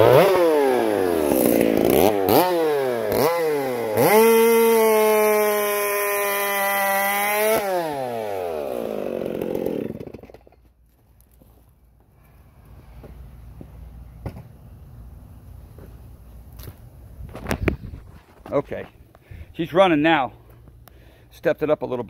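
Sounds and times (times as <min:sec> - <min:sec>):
chainsaw revving: 0:00.0 - 0:10.6
chainsaw cutting log: 0:00.0 - 0:10.8.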